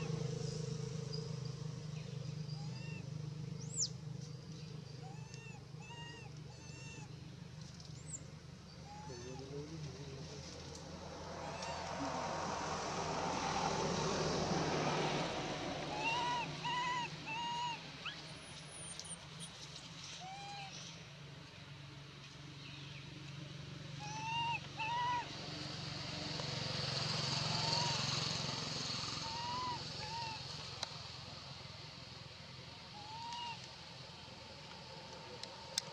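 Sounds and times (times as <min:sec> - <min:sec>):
steady outdoor hiss: 0:00.0 - 0:35.9
baby monkey cooing: 0:15.9 - 0:17.8.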